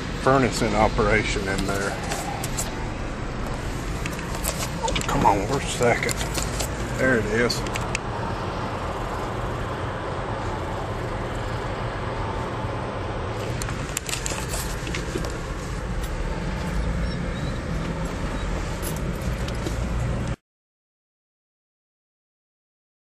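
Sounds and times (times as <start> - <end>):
car engine and road noise: 0.0 - 20.4.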